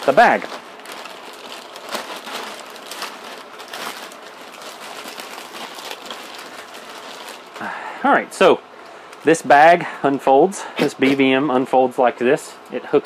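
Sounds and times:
plastic packaging crinkling: 0.0s - 7.7s.

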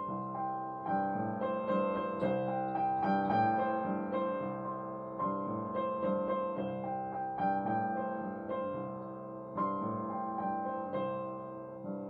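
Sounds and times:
solo piano chords: 0.0s - 12.0s.

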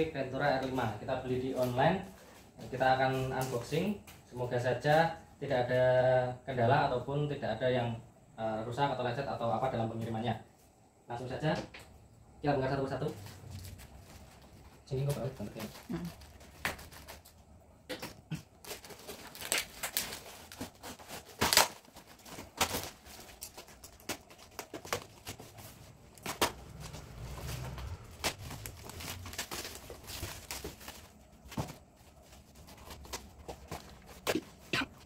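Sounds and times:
cardboard and plastic tearing: 13.2s - 35.0s.

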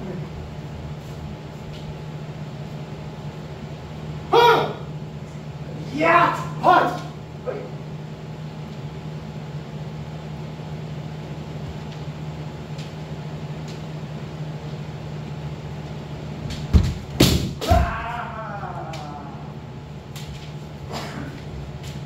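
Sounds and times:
low room hum: 0.0s - 22.0s
foot stamp on wooden floor: 16.5s - 17.8s
bamboo swords cracking: 16.5s - 18.1s.

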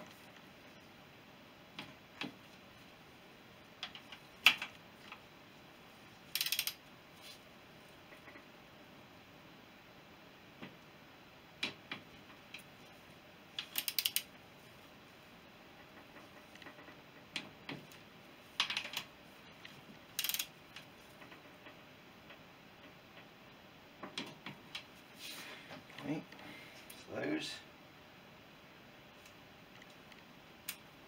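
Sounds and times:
ratcheting wrench clicking: 6.3s - 6.8s, 13.6s - 14.3s, 20.2s - 20.5s.

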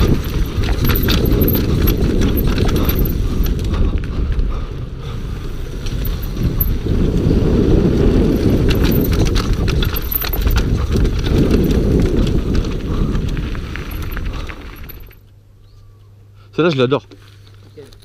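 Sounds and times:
bike frame and chain rattling: 0.0s - 3.8s, 5.4s - 15.3s
tyres rumbling: 0.0s - 15.2s.

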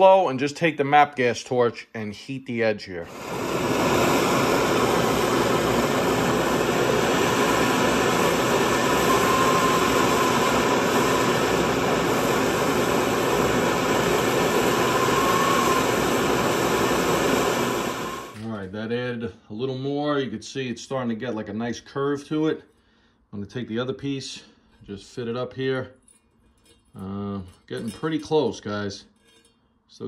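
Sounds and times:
gas torch flame hissing: 3.1s - 18.4s
metal lathe running: 3.1s - 18.4s.

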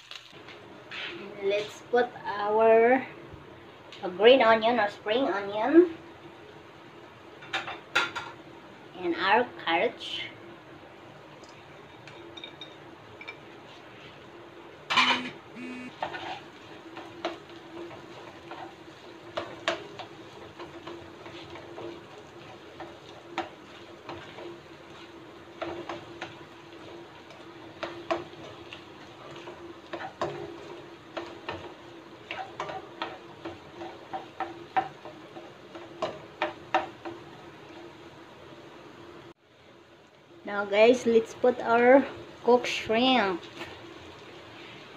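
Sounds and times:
spatula scraping a wok: 16.0s - 36.9s.

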